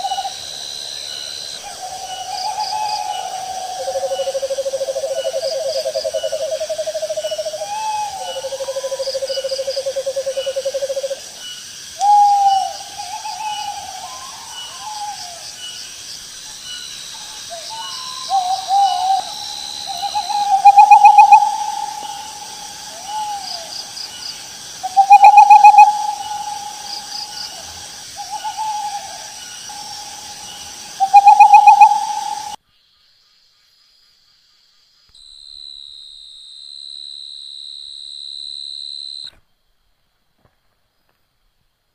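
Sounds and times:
owl hooting: 0.0s - 0.4s, 1.6s - 11.2s, 12.0s - 15.6s, 17.1s - 24.2s, 24.8s - 32.6s
insects chirring: 0.0s - 41.2s
owl trilled call: 1.7s - 11.2s, 12.0s - 15.4s, 17.2s - 23.7s, 24.8s - 27.6s, 28.2s - 32.6s.

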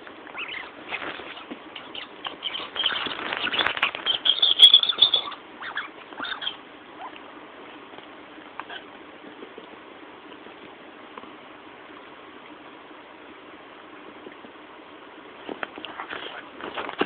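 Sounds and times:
dog scuffling on cushion: 0.8s - 1.6s, 15.4s - 17.0s.

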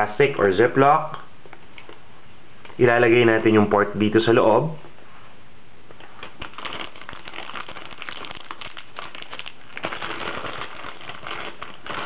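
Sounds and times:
plastic bag crinkling: 6.0s - 12.0s.

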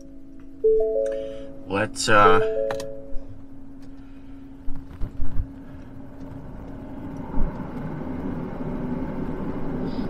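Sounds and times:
steady low hum: 0.0s - 10.0s
fan-like rushing noise: 4.7s - 10.0s.

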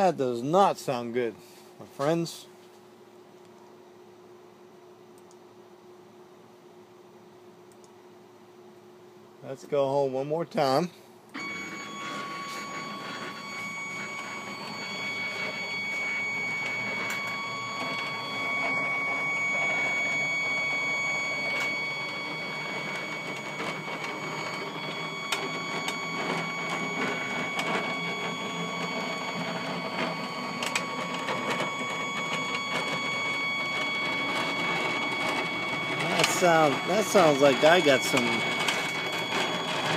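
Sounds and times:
scattered clicks: 5.2s - 5.4s, 7.7s - 7.9s
stepper motors whining: 11.4s - 39.9s.

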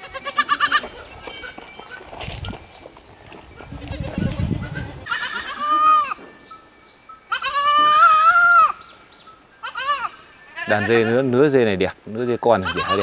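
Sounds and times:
goat kid bleating: 0.0s - 1.0s, 3.6s - 6.2s, 7.3s - 8.8s, 9.6s - 11.3s, 12.6s - 13.0s.

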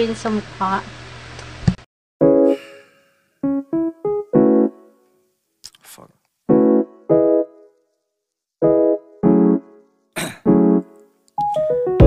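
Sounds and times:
clipped keyboard chords: 2.2s - 2.8s, 3.4s - 5.1s, 6.5s - 7.8s, 8.6s - 12.0s.

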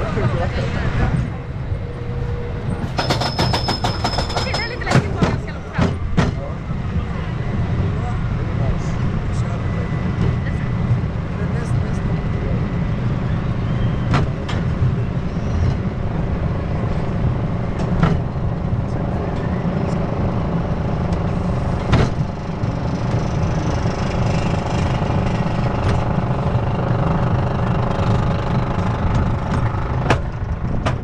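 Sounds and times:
roller coaster rumbling: 0.0s - 31.0s
sharp knocks: 2.8s - 6.4s
mechanical hum: 12.1s - 31.0s.

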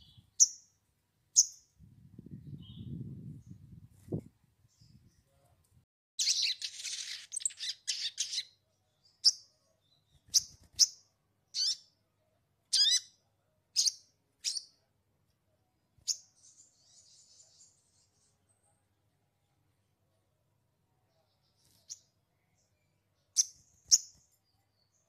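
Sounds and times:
songbird chirping: 0.0s - 15.4s, 16.0s - 25.0s
faint buzzy bird chatter: 6.2s - 14.8s, 16.0s - 25.0s.

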